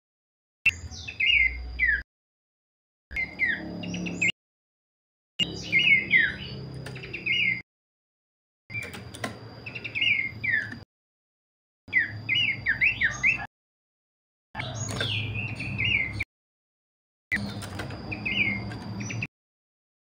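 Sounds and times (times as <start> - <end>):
bird chirping in runs: 5.4 - 7.6, 14.6 - 16.3, 17.3 - 19.3.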